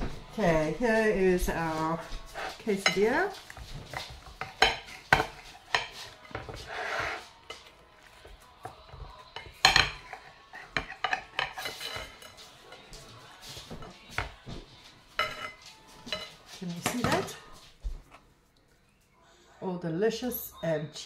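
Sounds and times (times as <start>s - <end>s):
knife clacking against a plate: 2.8s - 6.6s, 9.4s - 12.8s.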